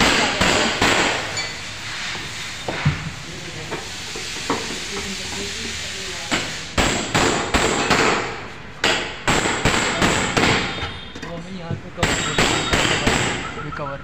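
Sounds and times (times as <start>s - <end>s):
hammer strikes: 0.0s - 1.5s, 6.3s - 11.2s, 12.0s - 13.7s.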